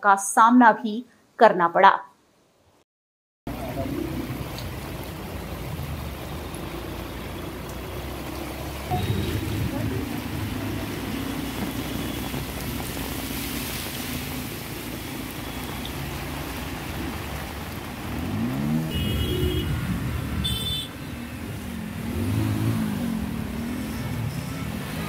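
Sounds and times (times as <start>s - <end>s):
car and motorbike engines: 3.5s - 25.0s
water washing: 3.5s - 25.0s
engine revving: 18.1s - 20.6s, 21.6s - 25.0s.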